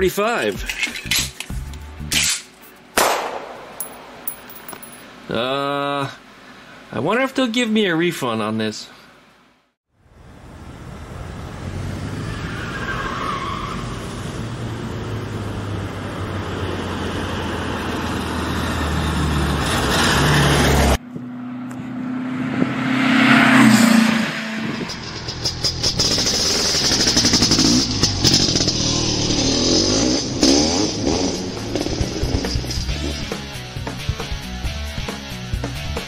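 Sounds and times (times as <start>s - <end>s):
road noise: 9.9s - 34.6s
another vehicle: 10.1s - 33.6s
car engine running: 24.9s - 33.4s.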